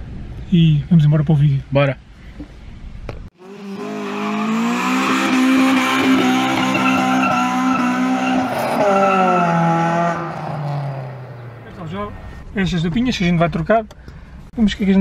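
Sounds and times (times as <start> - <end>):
car engine revving high: 3.4 - 11.8
tyres squealing: 5.6 - 11.8.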